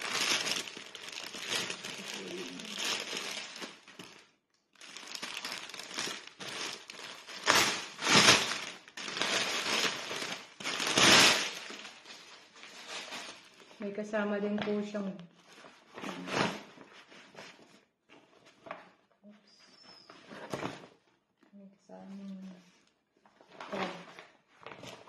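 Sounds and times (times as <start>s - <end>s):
plastic bags crinkling: 0.0s - 13.9s.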